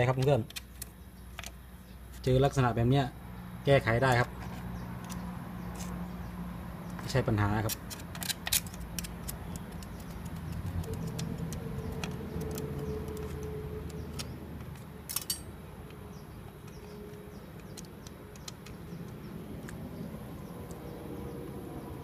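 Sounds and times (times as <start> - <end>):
metal tool clicking and scraping: 7.6 - 18.8.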